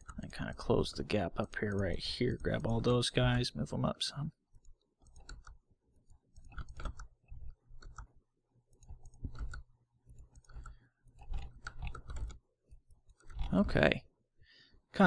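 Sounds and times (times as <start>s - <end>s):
mouse and keyboard clicks: 4.6s - 5.6s, 6.3s - 13.6s.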